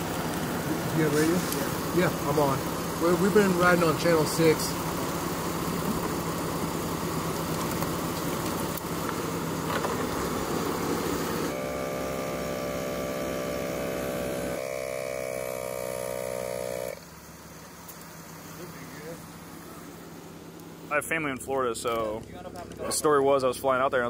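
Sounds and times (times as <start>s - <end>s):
car engine and road noise: 0.0s - 24.0s
smooth hum with held tones: 5.2s - 18.6s.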